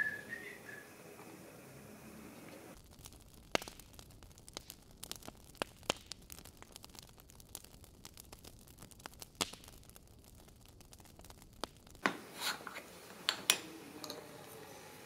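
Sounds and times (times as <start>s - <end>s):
old film crackle: 2.3s - 15.0s
metal tin scraping: 12.1s - 14.7s.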